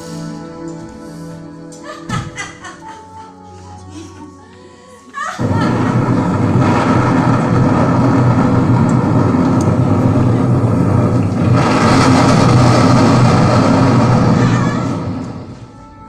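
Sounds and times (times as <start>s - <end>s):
dense low rumbling soundtrack: 5.4s - 16.0s.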